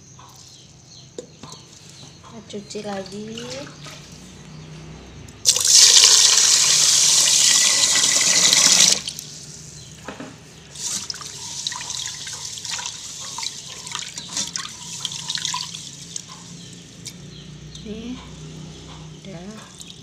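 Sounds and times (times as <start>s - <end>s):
tap water pouring into pot: 5.5s - 9.2s.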